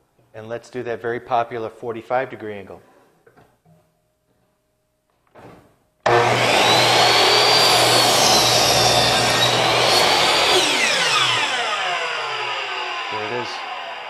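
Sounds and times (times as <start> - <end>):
miter saw whining: 6.1 - 14.0
saw blade cutting wood: 6.1 - 14.0
saw motor winding down: 6.1 - 14.0.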